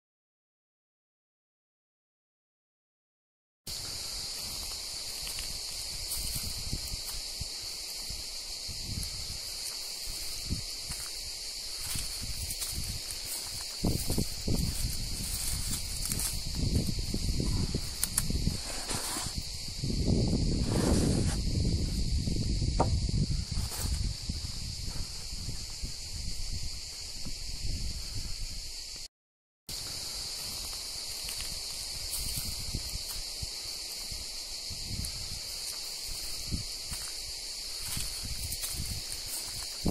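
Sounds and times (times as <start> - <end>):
cicadas chorus: 3.7 - 29.1, 29.7 - 39.9
wind rumble on microphone: 3.7 - 29.1, 29.8 - 39.9
thumps on microphone: 22.7 - 23.2.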